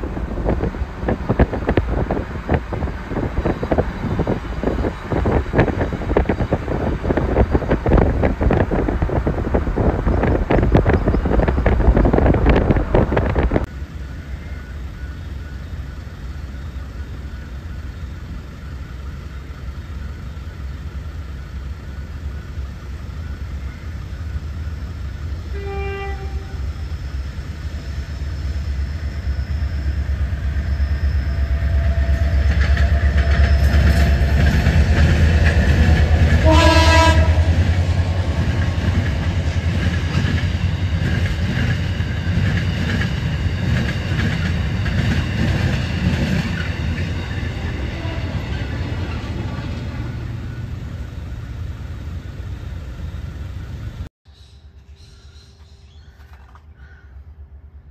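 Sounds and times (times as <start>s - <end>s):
diesel locomotive engines rumbling: 0.0s - 57.9s
train horn: 25.4s - 26.9s, 36.2s - 38.0s, 47.2s - 48.8s.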